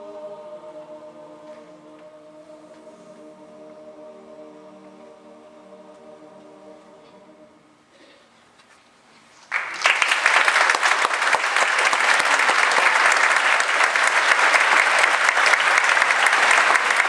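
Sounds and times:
audience applause: 9.4s - 17.0s.

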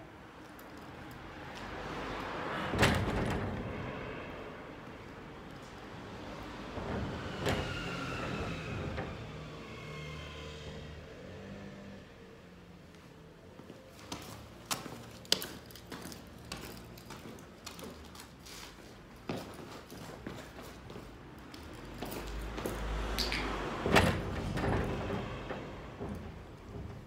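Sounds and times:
vehicle passing by: 1.2s - 17.1s, 21.7s - 26.2s
footsteps on paving: 13.6s - 21.2s.

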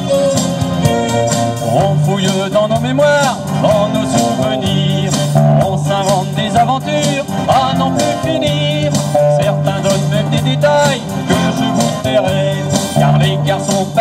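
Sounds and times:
live pop band playing: 0.0s - 14.0s.

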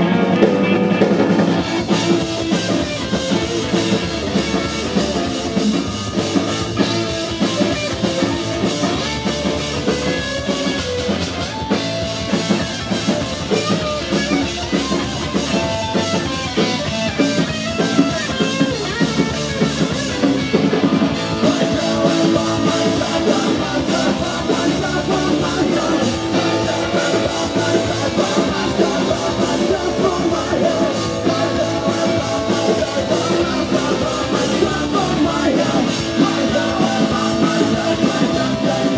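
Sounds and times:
bass guitar: 0.0s - 38.9s
drum kit: 0.0s - 38.9s
electric guitar: 0.0s - 38.9s.

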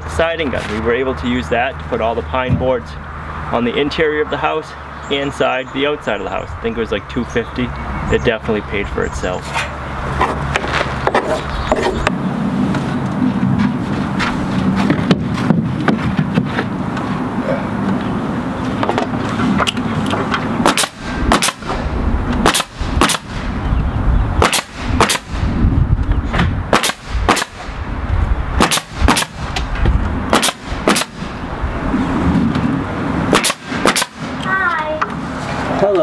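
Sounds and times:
nail gun shots: 20.6s - 21.8s, 22.4s - 23.5s, 24.4s - 25.4s, 26.7s - 27.8s, 28.6s - 29.7s, 30.3s - 31.3s, 33.3s - 34.4s.

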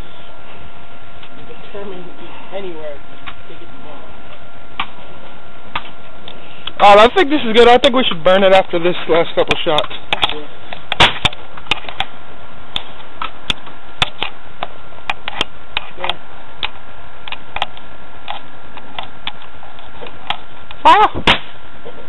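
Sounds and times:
air rifle shot: 10.9s - 11.4s, 21.2s - 21.6s.

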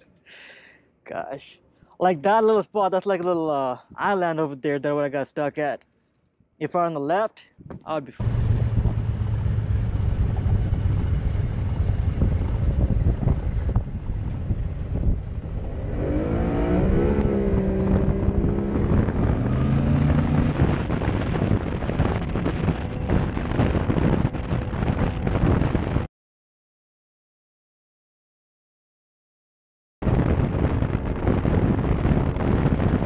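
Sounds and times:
wind: 0.0s - 26.1s, 30.0s - 33.0s
boat motor running: 8.2s - 26.0s.

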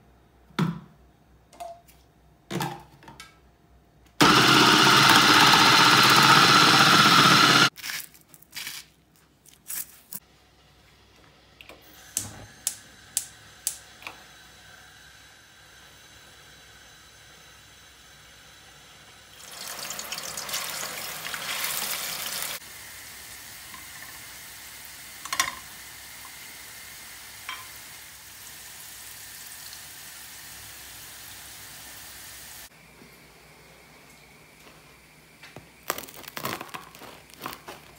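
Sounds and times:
food processor motor running: 4.2s - 7.7s
oil hissing in frying pan: 19.3s - 32.7s.

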